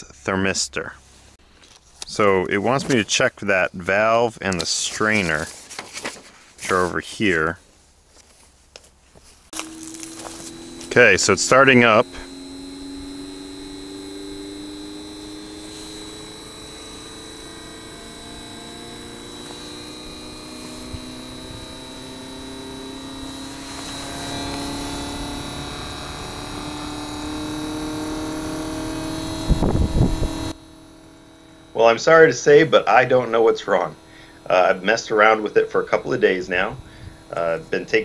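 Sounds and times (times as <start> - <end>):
steady high whine: 0.0 - 7.6, 9.5 - 38.0
air conditioner motor hum rising: 9.5 - 38.0.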